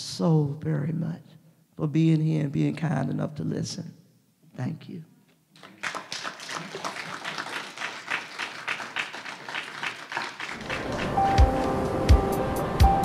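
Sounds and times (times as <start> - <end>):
audience applauding: 5.6 - 12.9.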